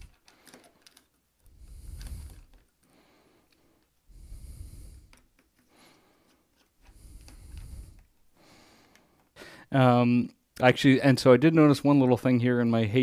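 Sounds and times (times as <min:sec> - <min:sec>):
soft breathing: 0:00.0 - 0:09.8.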